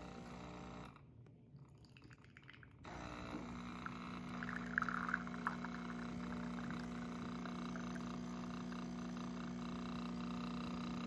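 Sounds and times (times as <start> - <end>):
coffee maker pump humming: 0.0 - 11.0
espresso trickling into cup: 1.8 - 8.2.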